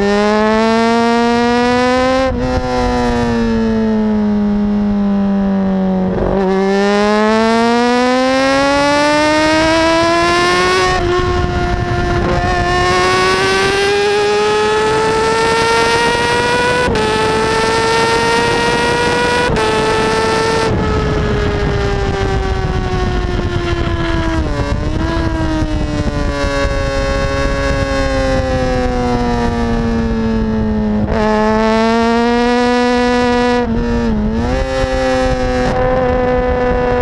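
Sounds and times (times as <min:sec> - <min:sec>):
motorcycle engine accelerating: 0:00.0 - 0:37.0
wind rush: 0:01.2 - 0:04.9, 0:05.8 - 0:37.0.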